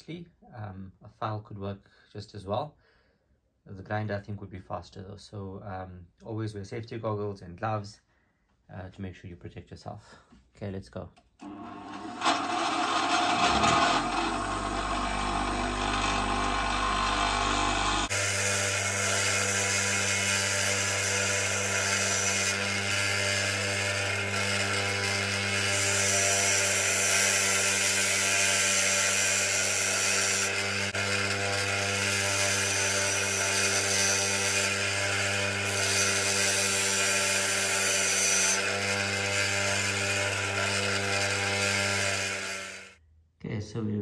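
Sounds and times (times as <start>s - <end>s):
bench grinder motor hum: 11.4s - 43.0s
metal shaft grinding on wheel: 11.6s - 18.2s.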